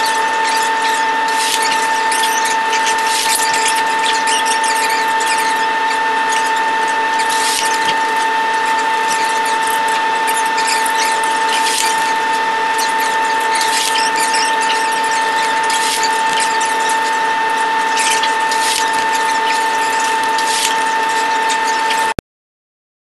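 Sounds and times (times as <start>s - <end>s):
crackling noise: 0.0s - 22.2s
high-pitched whine: 0.0s - 22.2s.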